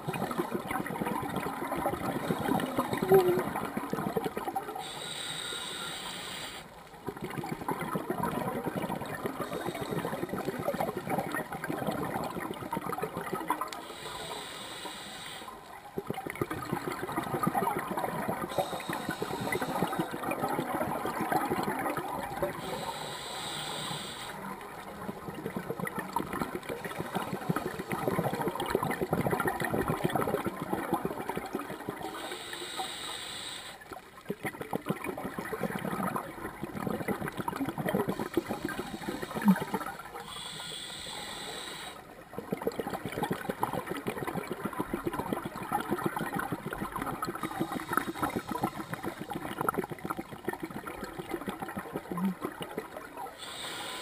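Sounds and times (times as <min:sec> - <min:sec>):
exhaled air bubbling: 0:00.0 - 0:54.0
regulator inhalation hiss: 0:04.8 - 0:06.7, 0:09.4 - 0:10.3, 0:13.8 - 0:15.6, 0:18.5 - 0:20.2, 0:22.5 - 0:24.5, 0:32.0 - 0:33.8, 0:38.0 - 0:42.0, 0:47.4 - 0:49.4, 0:53.4 - 0:54.0.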